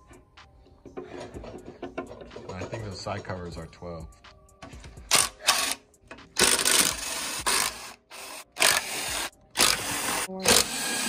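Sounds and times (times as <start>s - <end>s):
impact driver whirring: 6.4s - 11.0s.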